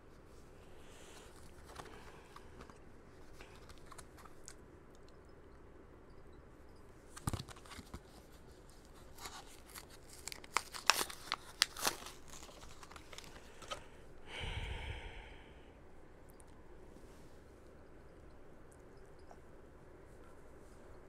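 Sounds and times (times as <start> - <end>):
plastic packaging crackling: 7.1 - 13.9.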